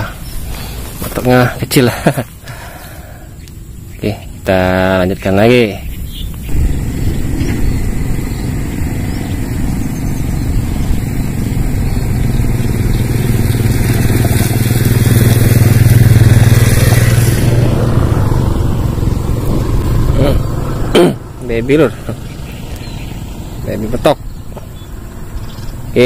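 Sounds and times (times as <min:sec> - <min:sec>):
motorcycle passing by: 0:06.1 - 0:26.0.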